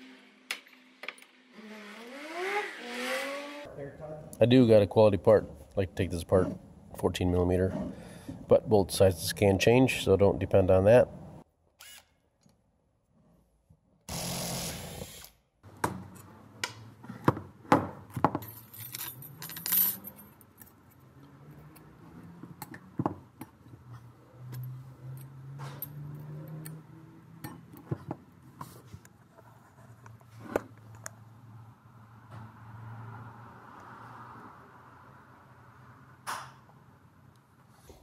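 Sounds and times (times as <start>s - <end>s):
metal parts clinking on workbench: 18.4s - 20.6s.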